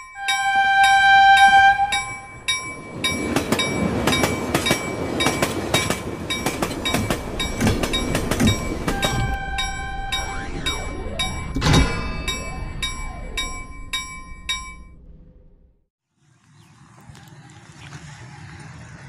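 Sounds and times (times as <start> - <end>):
running train: 0.0 - 14.9
train horn: 0.2 - 2.3, 8.9 - 10.4
sharp clicks of train: 3.0 - 9.7.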